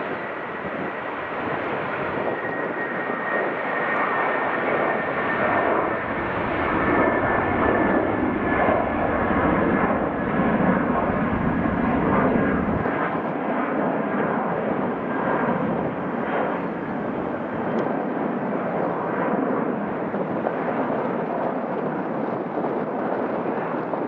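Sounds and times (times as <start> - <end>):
high engine whine: 0.0 - 13.0
jet engines roaring: 0.0 - 24.0.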